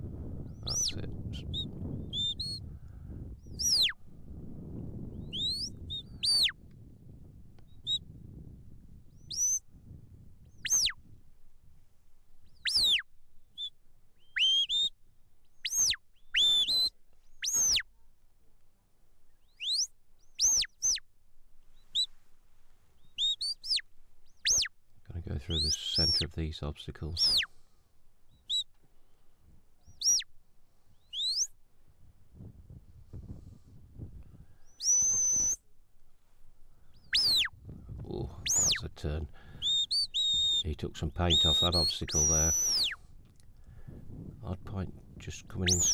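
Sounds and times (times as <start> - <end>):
shepherd's whistle: 0.7 - 2.6, 3.5 - 4.0, 5.2 - 6.6, 7.8 - 8.0, 9.2 - 9.6, 10.6 - 11.0, 12.5 - 15.0, 15.6 - 17.9, 19.5 - 21.0, 21.8 - 22.1, 23.0 - 24.7, 27.2 - 27.5, 28.4 - 28.7, 29.9 - 30.3, 31.0 - 31.6, 34.6 - 35.7, 37.0 - 37.5, 38.4 - 38.8, 39.6 - 43.0, 45.6 - 45.9
sharp whistled notes: 34.8 - 35.6, 37.1 - 37.5, 39.6 - 40.7, 41.3 - 43.0, 45.7 - 45.9.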